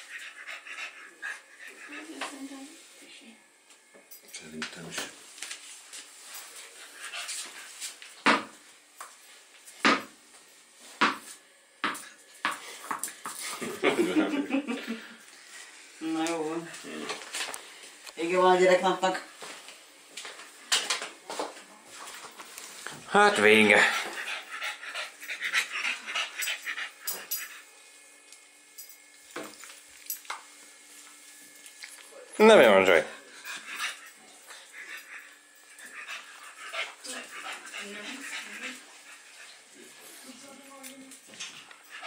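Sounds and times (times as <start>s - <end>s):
dog panting quickly: 23.2s - 27.0s, 33.4s - 39.6s.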